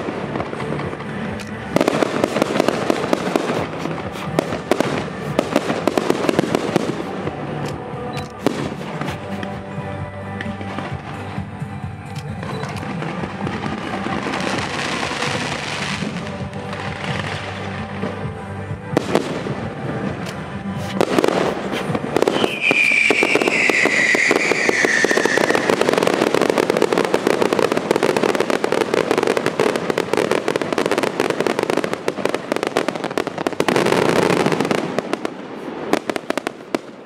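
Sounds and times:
fireworks bursting and crackling: 0:00.0 - 0:37.0
music: 0:00.0 - 0:37.0
falling firework whistle: 0:22.2 - 0:26.9.

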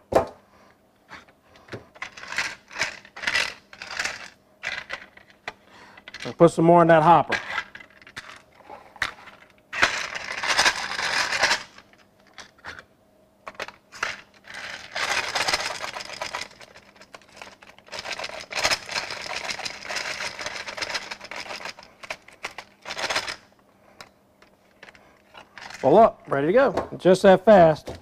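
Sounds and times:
cartridges rattling in plastic hopper: 0:13.5 - 0:23.4.

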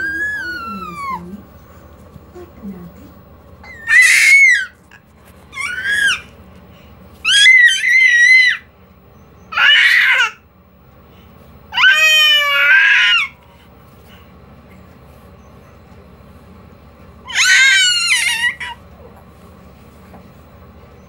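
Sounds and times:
child shrieking: 0:03.6 - 0:04.8, 0:05.5 - 0:06.3, 0:07.2 - 0:08.7, 0:09.5 - 0:10.4, 0:11.8 - 0:13.4, 0:17.3 - 0:18.8.

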